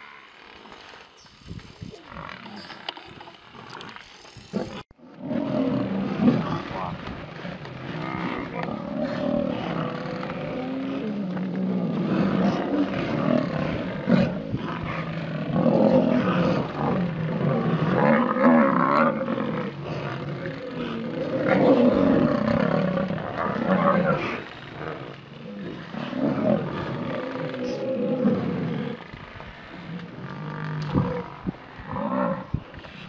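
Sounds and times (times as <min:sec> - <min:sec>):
large animals growling and bellowing: 0:01.8 - 0:33.0.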